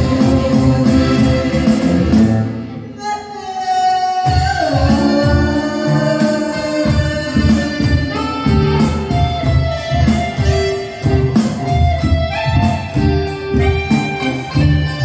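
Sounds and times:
woman singing: 0.0s - 2.0s, 2.8s - 8.5s
live band playing: 0.0s - 15.0s.

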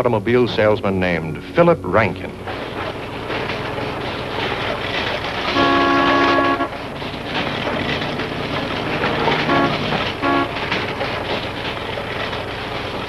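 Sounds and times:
car driving: 0.0s - 13.0s
car horn honking: 5.5s - 6.8s, 9.1s - 10.8s.

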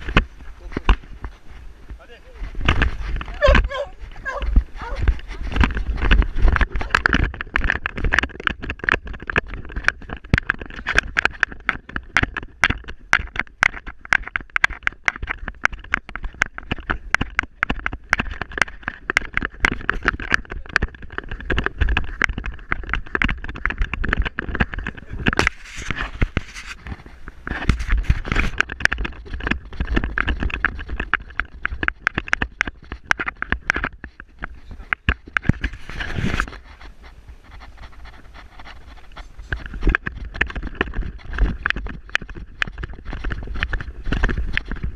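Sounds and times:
camera knocking and rattling: 0.0s - 44.9s
wind rumble on microphone: 0.0s - 44.9s.

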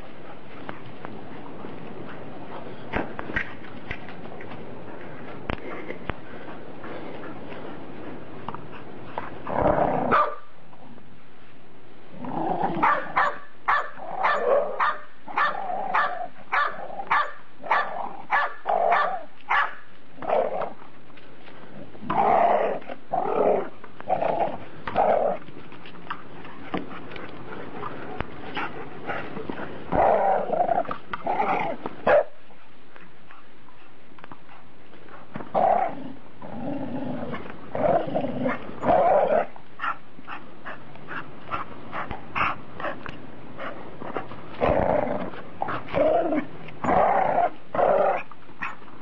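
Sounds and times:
dog barking: 10.1s - 10.5s, 12.8s - 19.8s.

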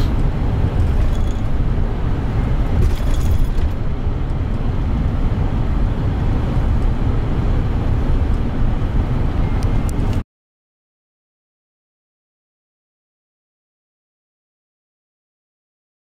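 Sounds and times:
bus engine and road noise: 0.0s - 10.2s.

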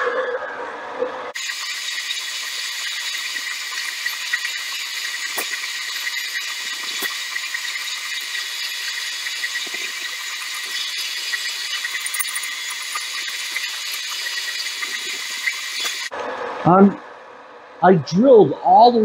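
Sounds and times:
drill cutting hiss: 1.4s - 16.1s.

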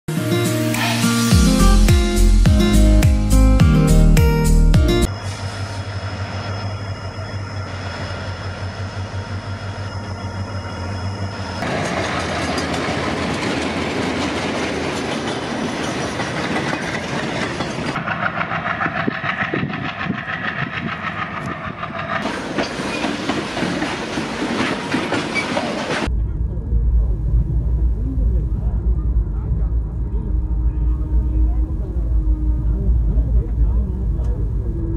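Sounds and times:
diesel locomotive engine: 0.7s - 34.9s
wheels clattering over rail joints: 11.6s - 26.1s.

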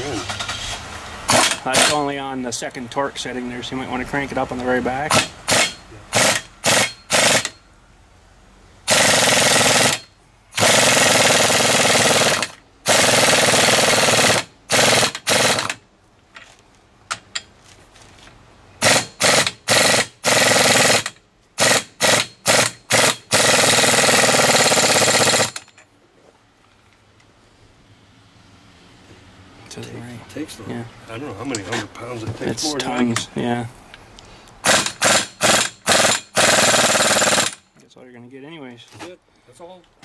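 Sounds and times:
air impact wrench hammering: 1.3s - 2.1s, 5.1s - 7.7s, 8.9s - 15.8s, 18.8s - 25.8s, 34.6s - 37.7s.

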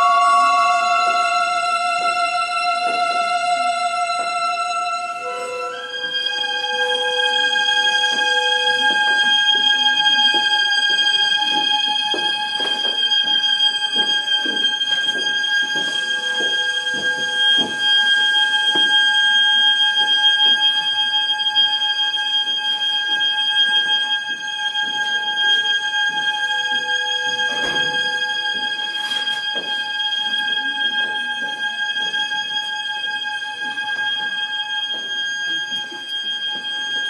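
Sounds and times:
high-pitched drone tone: 0.0s - 11.0s.

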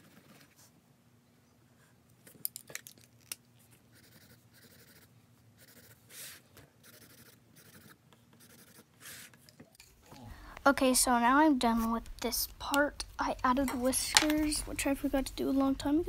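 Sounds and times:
pencil scratching on paper: 3.9s - 9.4s.

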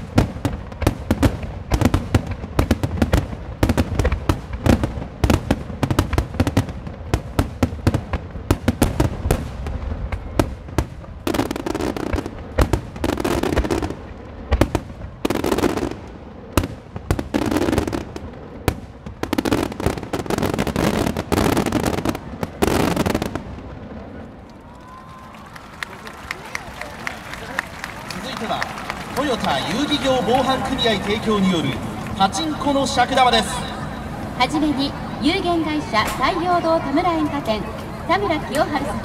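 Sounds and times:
firework booms: 0.0s - 24.4s
firework crackling: 0.0s - 39.0s.

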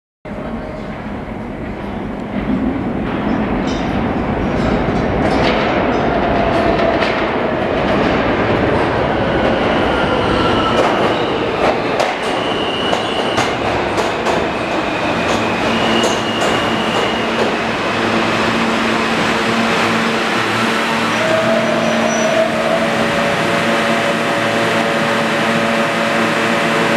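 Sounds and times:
train wheels rumbling on rail: 0.3s - 26.9s
high wheel squeals: 15.6s - 17.4s, 21.2s - 22.8s.

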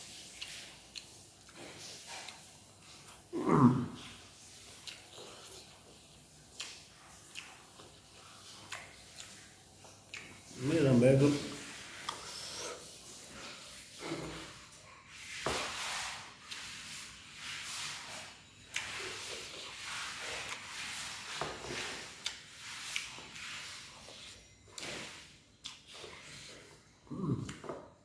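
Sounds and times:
person chewing: 0.0s - 10.6s, 11.4s - 14.7s, 18.6s - 28.0s.

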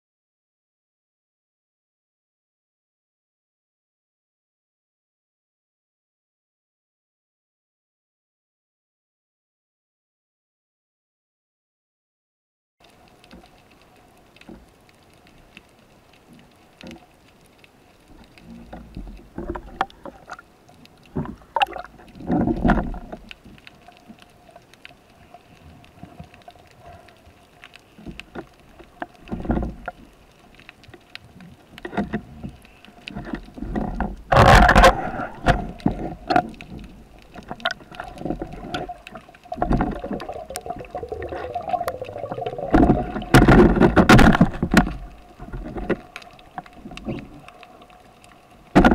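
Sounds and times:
water rushing underwater: 18.2s - 27.2s, 33.8s - 48.9s.

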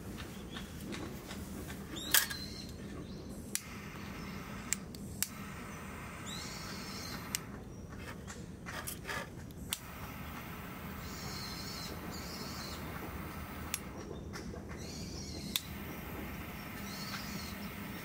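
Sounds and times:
gas lighter trigger clicks: 3.5s - 7.5s, 9.7s - 14.0s, 15.5s - 18.0s.

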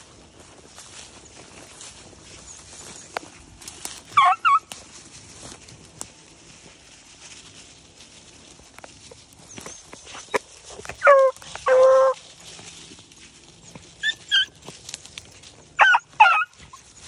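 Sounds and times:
hounds baying: 2.2s - 4.8s, 9.4s - 12.6s, 13.6s - 17.0s.

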